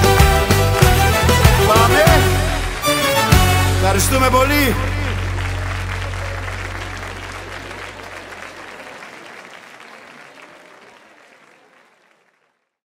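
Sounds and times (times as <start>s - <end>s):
audience applause: 0.0s - 12.8s
low bass note: 3.5s - 8.3s.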